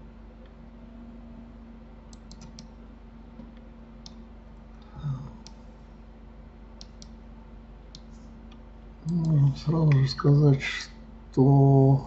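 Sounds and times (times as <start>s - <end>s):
faint steady hum: 0.0s - 12.0s
keyboard and mouse clicking: 2.1s - 2.8s, 9.0s - 10.0s.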